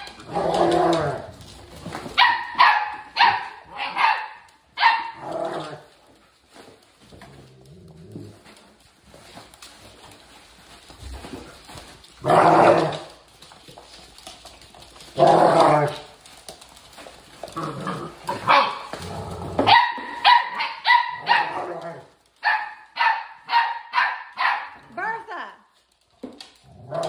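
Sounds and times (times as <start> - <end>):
dog barking: 2.2 - 5.2, 18.4 - 18.9, 19.6 - 21.7, 22.4 - 24.8.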